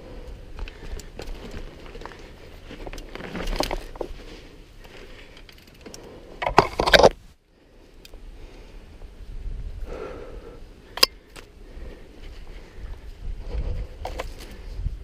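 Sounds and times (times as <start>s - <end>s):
bike clicks and rattles: 0.0s - 7.2s, 10.8s - 15.0s
mountain bike rolling on dirt: 0.0s - 15.0s.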